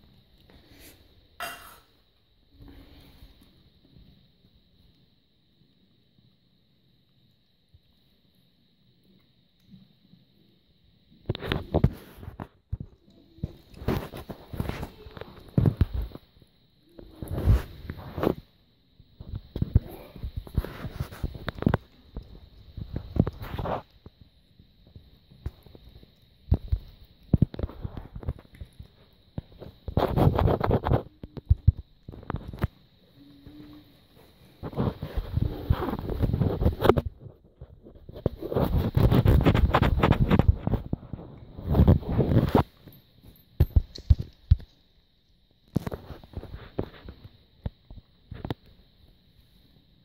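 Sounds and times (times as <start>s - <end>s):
cat chewing and licking: 20.4s - 33.4s
cat crunching food: 25.6s - 30.4s.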